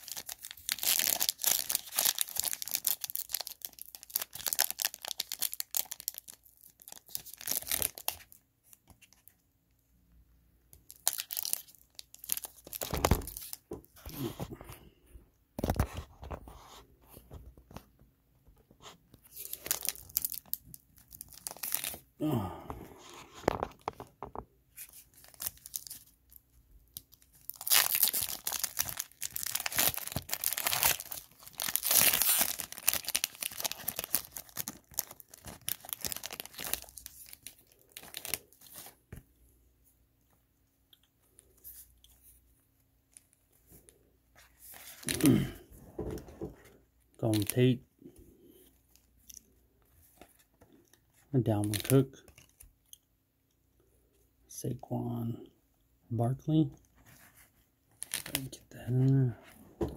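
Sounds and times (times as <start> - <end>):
foil wrapper crinkling and tearing: 0.0 - 8.4, 10.8 - 14.3, 19.3 - 22.1, 24.8 - 39.0, 43.1 - 45.6, 57.9 - 58.6.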